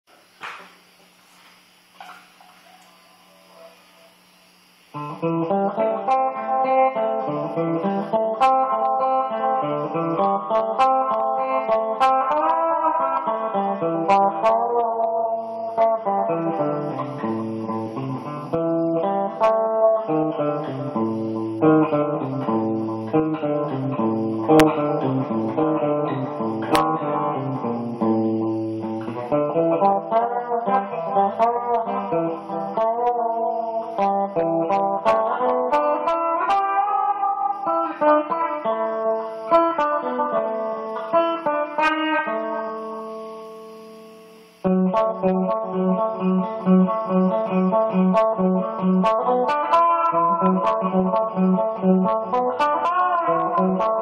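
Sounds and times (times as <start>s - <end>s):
solo guitar playing: 4.9s - 54.0s.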